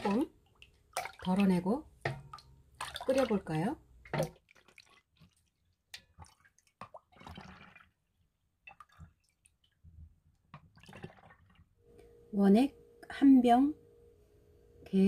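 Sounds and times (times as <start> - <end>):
ladle scooping liquid: 0.0 - 9.8, 10.4 - 11.7
liquid dripping and splashing: 0.0 - 11.8.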